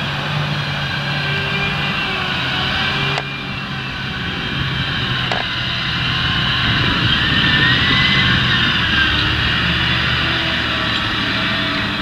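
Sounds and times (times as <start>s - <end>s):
tractor diesel engine under load: 0.0s - 12.0s.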